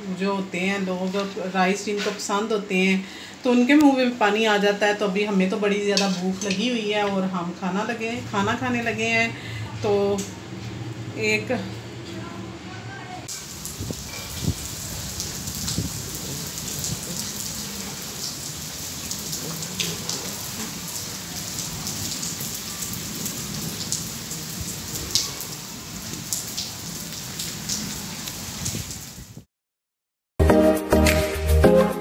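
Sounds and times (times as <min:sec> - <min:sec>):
heavy rain hiss: 0:08.0 - 0:09.8, 0:12.9 - 0:29.2
raindrops tapping close by: 0:13.3 - 0:29.1.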